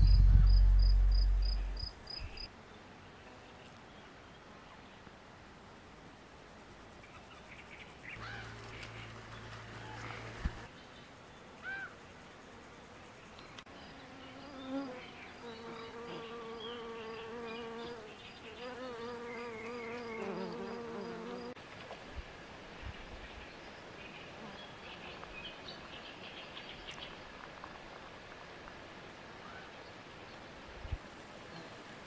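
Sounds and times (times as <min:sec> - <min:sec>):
bumblebee buzzing in flight: 0:14.0 - 0:21.6.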